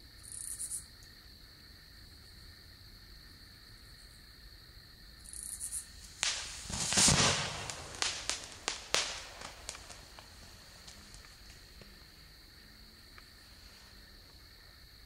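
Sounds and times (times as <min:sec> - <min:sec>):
crickets chirping: 0:00.0 - 0:15.0
firework whoosh and burst: 0:05.9 - 0:11.8
sharp cracks and pops: 0:06.0 - 0:12.1.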